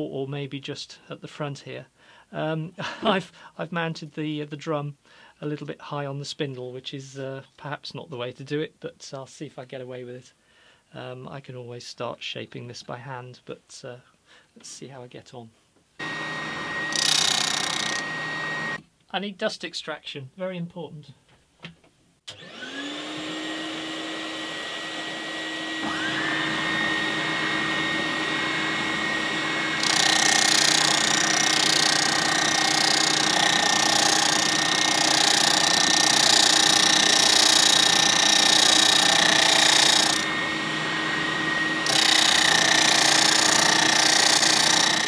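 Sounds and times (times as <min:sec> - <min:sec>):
dust extractor motor: 0:16.0 - 0:18.8, 0:22.3 - 0:45.0
spindle sander motor: 0:16.0 - 0:18.8, 0:22.3 - 0:45.0
sanding drum grinding wood: 0:23.0 - 0:45.0.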